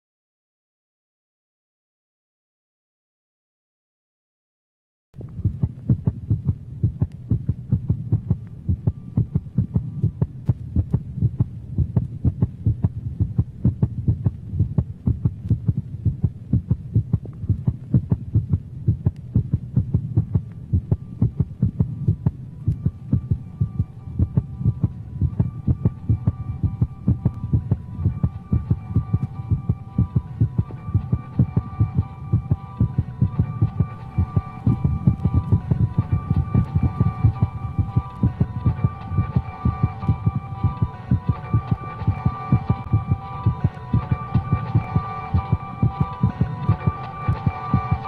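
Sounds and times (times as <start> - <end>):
fast pulsing electronic beat: 5.2 - 48.0
low throbbing synth drone: 5.2 - 48.0
high steady synth tones: 19.9 - 48.0.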